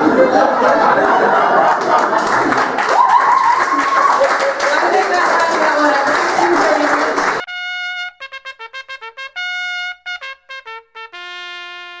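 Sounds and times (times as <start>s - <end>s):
solo trumpet playing a jingle: 7.4s - 12.0s.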